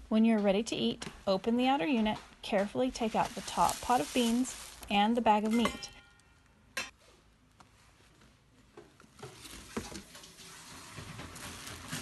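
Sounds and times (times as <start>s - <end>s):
metal pot clink: 5.5s - 6.9s.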